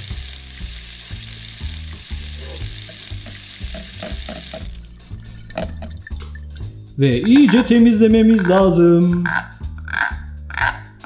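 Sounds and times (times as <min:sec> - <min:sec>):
water running from tap: 0:00.0 - 0:07.7.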